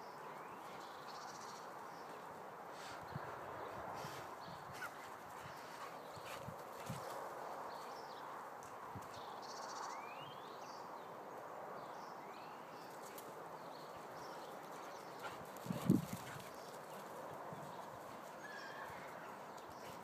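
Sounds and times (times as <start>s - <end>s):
outdoor hush: 0.0s - 6.8s
puppy running on grass: 4.1s - 7.3s, 14.7s - 20.0s.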